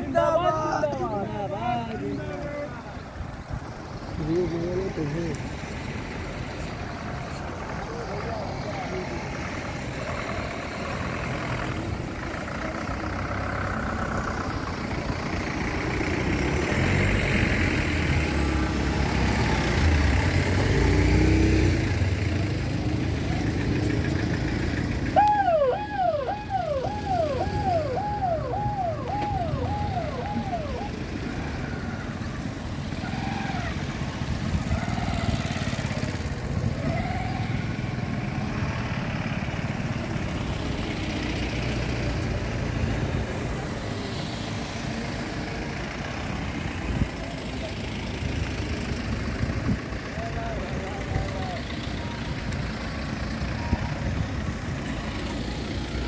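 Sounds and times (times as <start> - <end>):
cars driving past: 0.0 - 56.0
siren falling wail: 25.1 - 32.2.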